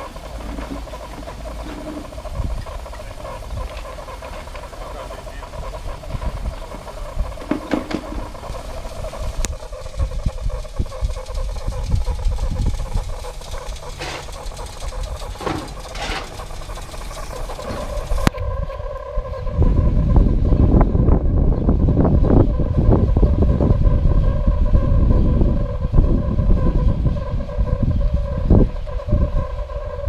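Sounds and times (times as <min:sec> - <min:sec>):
steam locomotive hissing: 0:00.0 - 0:18.3
wind rumbling on microphone: 0:00.0 - 0:30.0.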